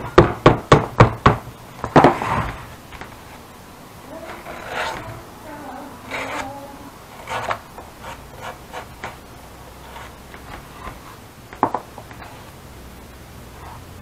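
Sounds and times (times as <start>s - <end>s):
tool scraping leather: 4.3s - 5.2s, 7.2s - 9.2s.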